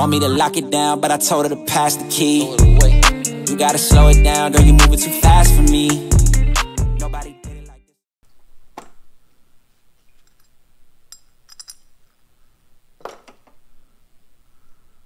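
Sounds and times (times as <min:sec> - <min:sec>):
background music: 0:00.0 - 0:07.9.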